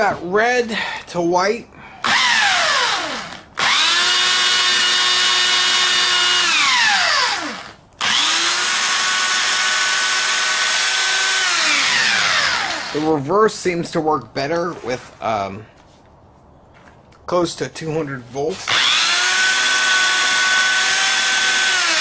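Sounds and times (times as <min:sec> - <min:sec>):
electric drill whining: 0:02.0 - 0:13.0, 0:18.7 - 0:22.0.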